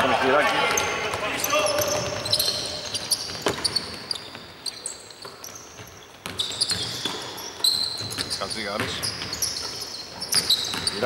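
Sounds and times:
sneakers squeaking on floor: 0:00.4 - 0:11.0.

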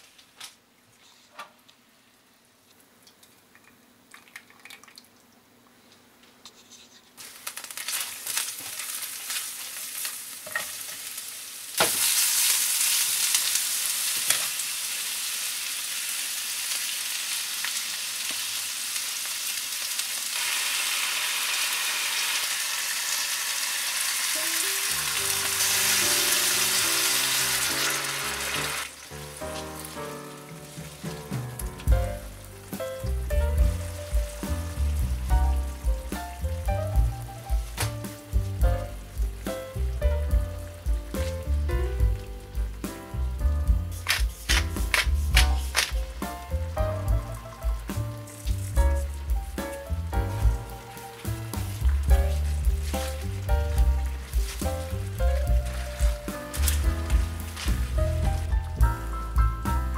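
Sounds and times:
liquid poured into pan: 0:03.5 - 0:05.2
onions frying in hot oil: 0:07.2 - 0:59.9
background music: 0:24.4 - 0:59.9.

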